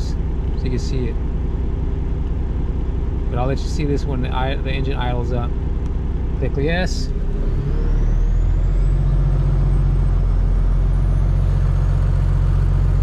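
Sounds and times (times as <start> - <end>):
diesel truck engine idling: 0.0 - 13.0
high whine climbing in pitch: 2.7 - 13.0.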